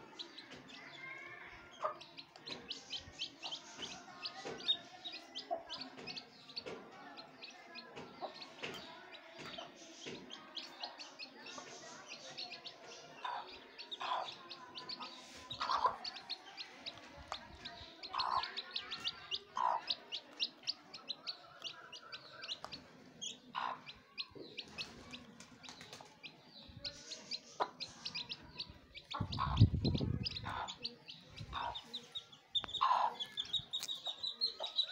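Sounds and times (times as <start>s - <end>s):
chicks peeping: 0.0s - 34.9s
hen clucking: 12.6s - 25.3s, 26.8s - 34.9s.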